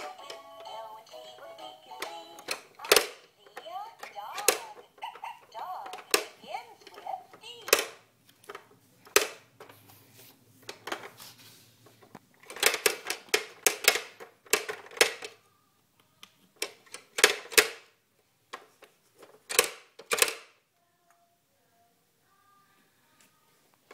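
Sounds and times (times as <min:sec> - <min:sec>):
plastic toy clicking and clacking: 0:00.0 - 0:09.5, 0:12.4 - 0:15.4, 0:16.0 - 0:17.9, 0:18.5 - 0:20.6.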